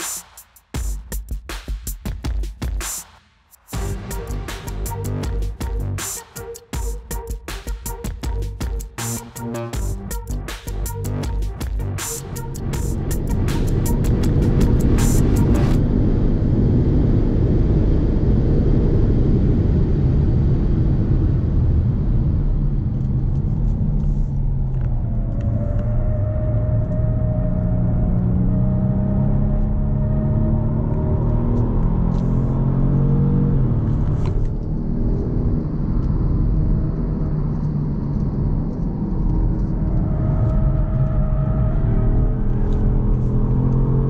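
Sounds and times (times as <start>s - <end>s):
road and wind rumble: 7.8s - 44.0s
car engine revving hard: 40.4s - 44.0s.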